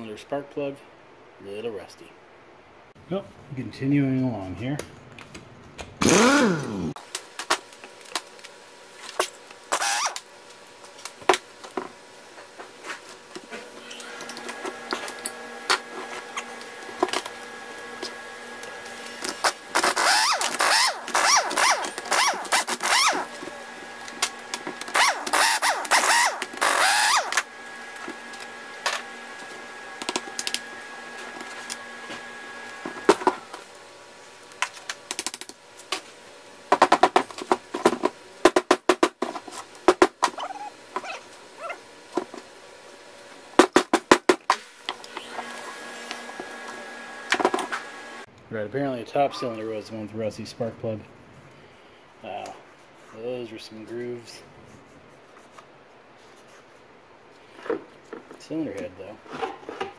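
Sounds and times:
faint steady hum: 0.0 - 59.9
pneumatic impact wrench: 6.0 - 6.9, 9.7 - 10.2, 19.2 - 23.6, 24.9 - 27.5.

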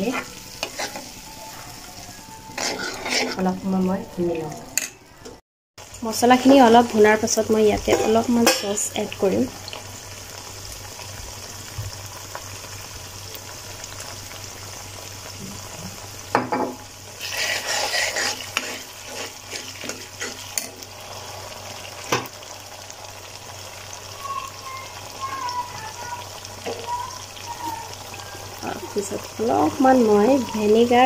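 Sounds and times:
spoon stirring and scraping: 0.0 - 3.6, 17.2 - 20.8
sauce sizzling in oil: 0.0 - 4.6, 5.8 - 31.0.

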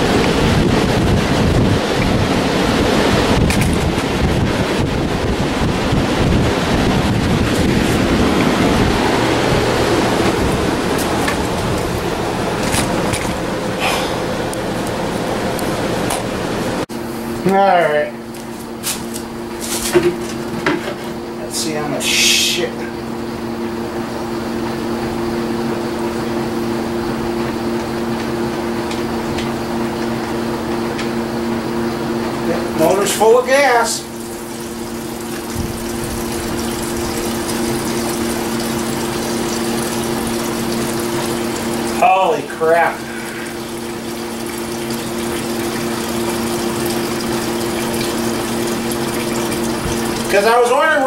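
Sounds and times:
mechanical hum: 0.0 - 51.0
oil draining into container: 32.7 - 50.7.

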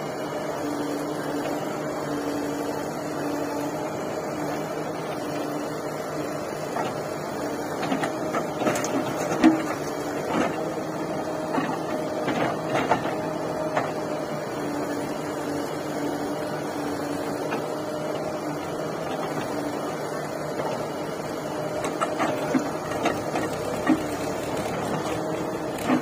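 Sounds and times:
diesel engines running: 0.0 - 26.0.

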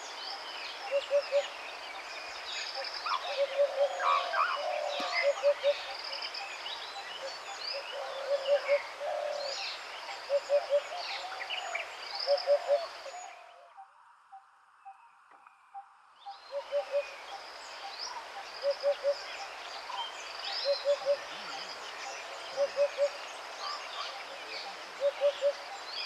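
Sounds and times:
low hooting bird call: 3.0 - 5.8, 25.0 - 25.7.

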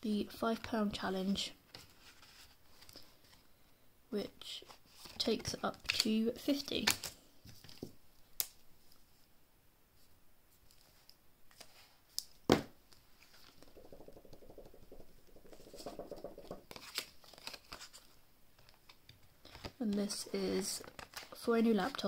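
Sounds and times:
scratchy rubbing: 13.2 - 17.1
paper banknotes rustling: 15.3 - 18.1.

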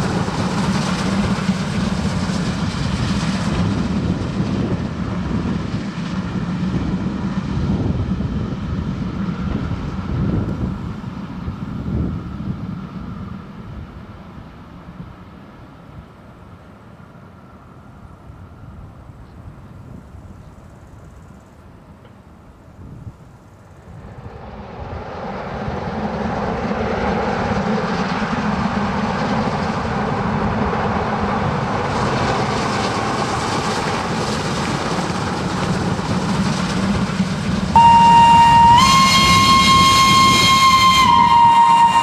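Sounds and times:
steam locomotive running by: 0.0 - 42.0
steam whistle: 37.8 - 42.0.

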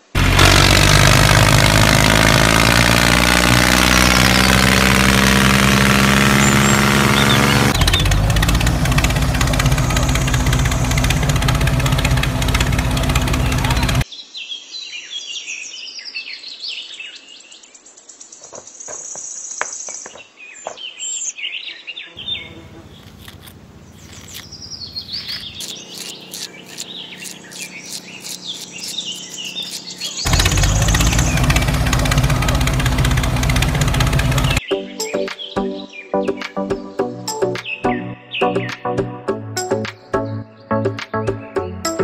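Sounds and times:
small birds chirping: 5.8 - 15.2, 16.8 - 37.0.

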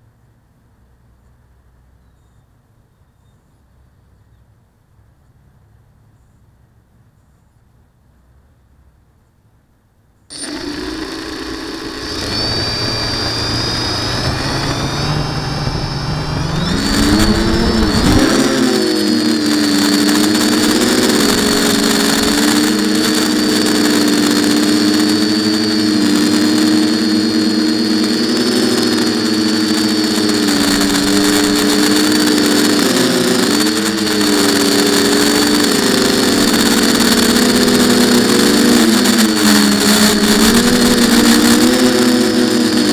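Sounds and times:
drone propeller hum: 10.3 - 42.9
high motor whine: 10.3 - 42.9.

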